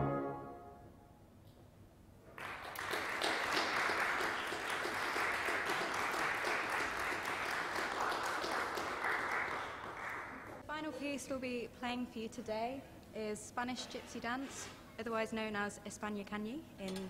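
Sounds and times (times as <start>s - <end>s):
applause: 2.3s - 10.6s.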